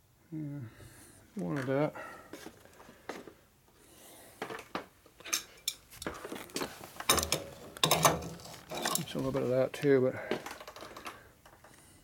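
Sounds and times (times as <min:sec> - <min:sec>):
metal tools clinking: 0:07.1 - 0:09.4.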